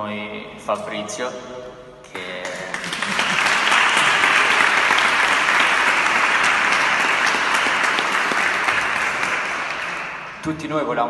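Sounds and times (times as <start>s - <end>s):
audience applauding: 2.2s - 10.4s.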